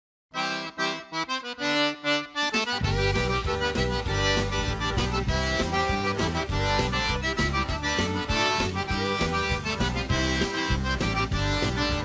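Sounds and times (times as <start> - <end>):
bass line: 0.4 - 12.0
melodic lead: 0.4 - 12.0
steady beat: 2.6 - 12.0.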